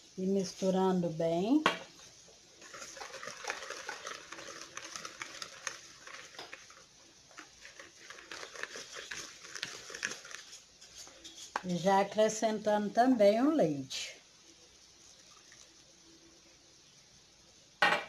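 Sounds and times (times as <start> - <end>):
whisk scraping batter in bowl: 2.6 - 11.8.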